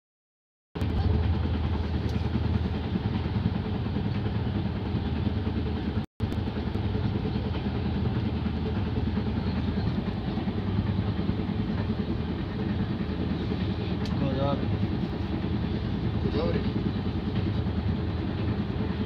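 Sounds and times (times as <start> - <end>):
train rumbling inside carriage: 0.8 - 19.0.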